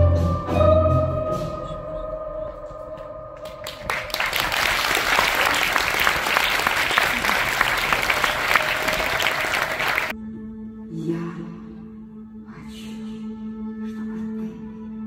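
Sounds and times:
audience applauding: 3.4s - 10.1s.

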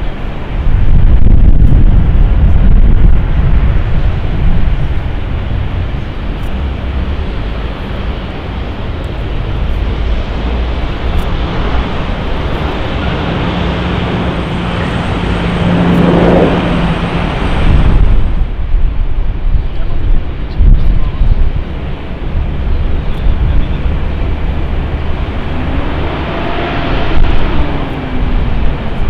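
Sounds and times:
high fan whine: 0.0s - 29.0s
jet engines at high power: 0.0s - 29.0s
wind buffeting microphone: 0.0s - 29.0s.

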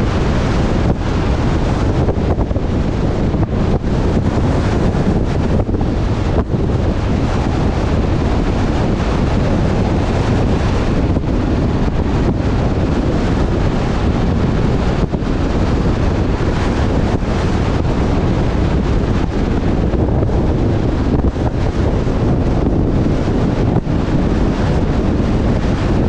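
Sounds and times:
road and engine rumble: 0.0s - 26.0s
wind rushing over microphone: 0.0s - 26.0s.

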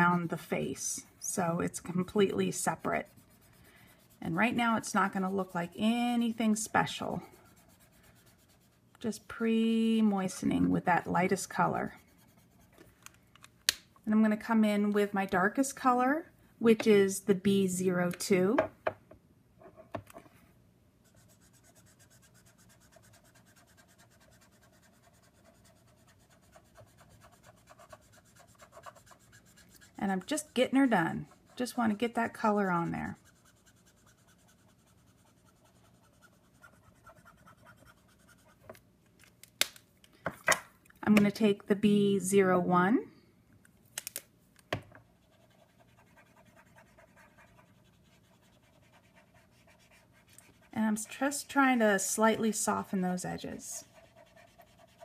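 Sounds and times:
marker nib scratching on card: 21.1s - 31.8s, 33.1s - 38.6s, 45.2s - 50.7s, 53.8s - 55.0s.

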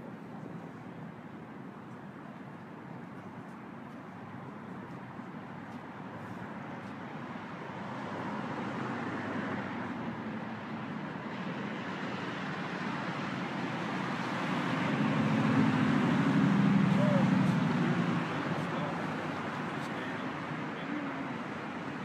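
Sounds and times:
road traffic hum: 0.0s - 22.0s.

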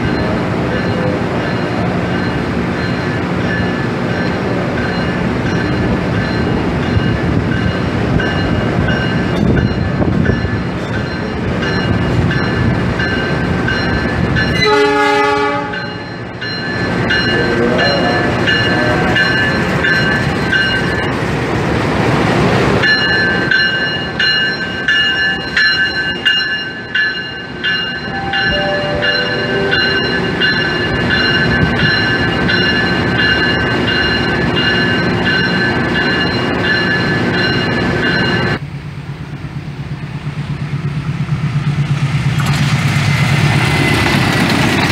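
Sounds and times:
locomotive engine running: 0.0s - 44.9s
locomotive horn blast: 14.6s - 16.0s.

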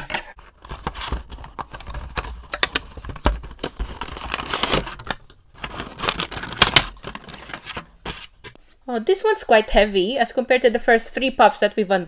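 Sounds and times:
plastic bag rustling: 3.4s - 8.4s.

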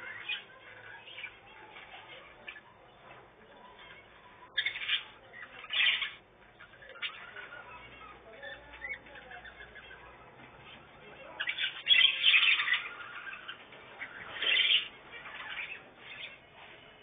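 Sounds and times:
budgerigars chirping: 3.9s - 16.7s.

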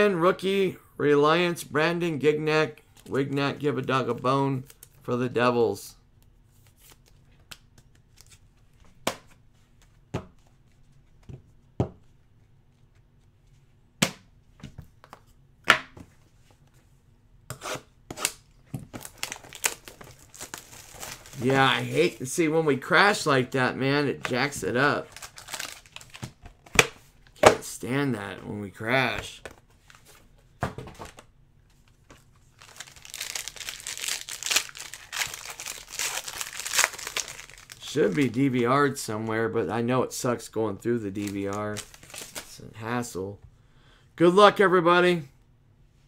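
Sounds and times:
card rustling: 18.9s - 23.2s, 24.1s - 27.4s, 30.9s - 38.6s, 41.1s - 42.6s
foil wrapper tearing and crinkling: 19.0s - 22.0s, 25.1s - 26.2s, 32.6s - 38.4s, 41.2s - 42.5s.

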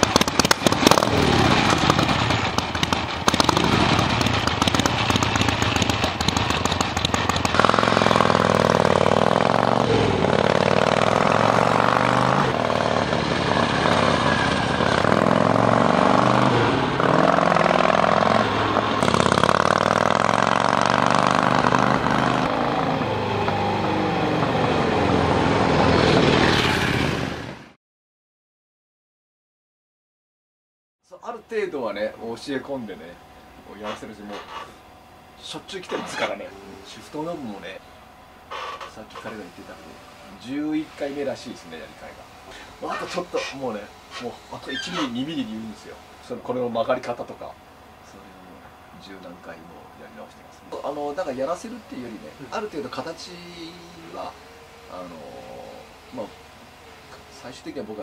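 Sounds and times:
motorcycle engine revving and accelerating: 0.0s - 27.6s.

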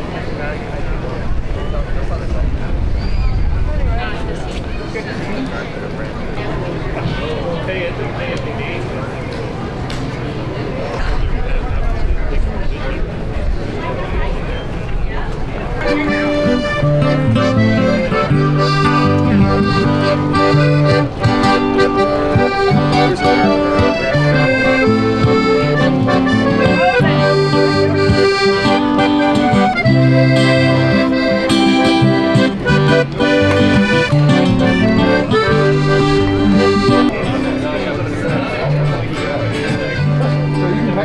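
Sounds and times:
accordion music: 15.8s - 41.0s.

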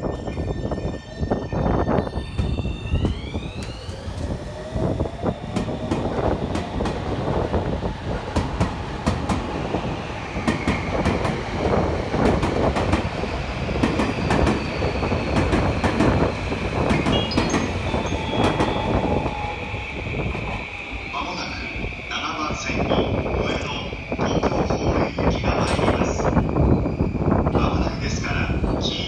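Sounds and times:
electric train motor whine: 0.3s - 22.4s
high steady tone: 16.6s - 23.0s.

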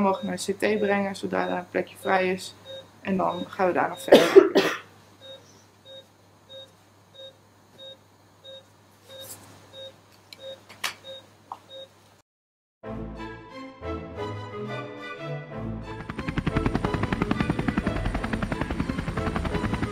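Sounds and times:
patient monitor pulse beeps: 0.0s - 4.1s, 5.2s - 11.9s
music: 12.8s - 19.9s.

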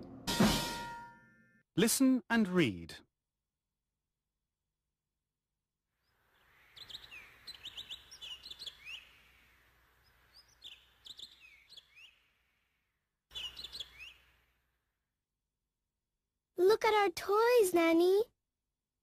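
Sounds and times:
birds chirping and whistling: 6.3s - 12.5s, 13.3s - 14.4s.

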